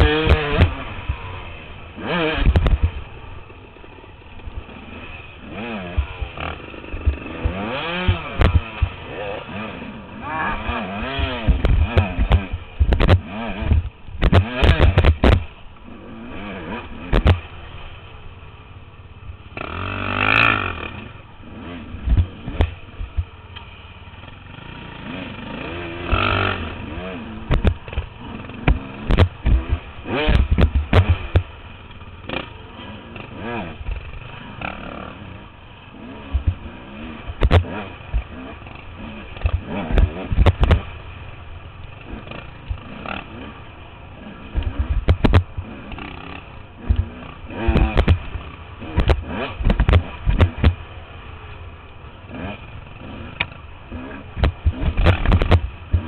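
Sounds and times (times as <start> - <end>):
dirt bike engine revving: 0.0 - 56.0
knocks and clatter over rocks: 27.5 - 31.5, 37.4 - 38.3, 44.6 - 45.7, 46.8 - 50.8, 54.4 - 56.0.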